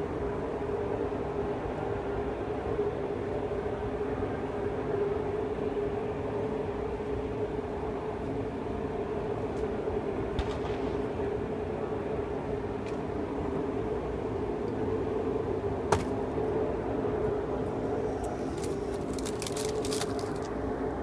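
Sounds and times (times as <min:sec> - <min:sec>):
crinkling packet clicks: 0:18.2 - 0:20.6.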